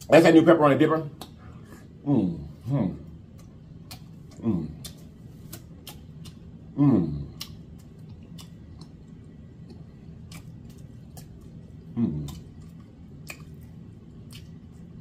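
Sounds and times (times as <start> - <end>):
mouth clicks and lip smacks: 1.1 - 1.4, 3.2 - 6.7, 7.3 - 14.9.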